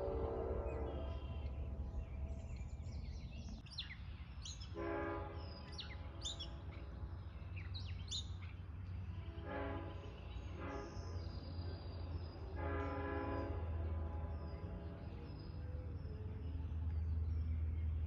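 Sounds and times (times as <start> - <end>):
train horn blasts: 0.0 - 1.8, 4.7 - 6.5, 9.0 - 11.4, 12.4 - 14.9
birds chirping: 0.0 - 18.0
low train rumble: 0.0 - 18.0.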